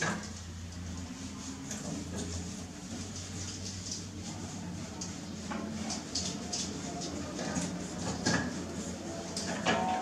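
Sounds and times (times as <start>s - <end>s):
towel rubbing wet fur: 0.3s - 9.5s.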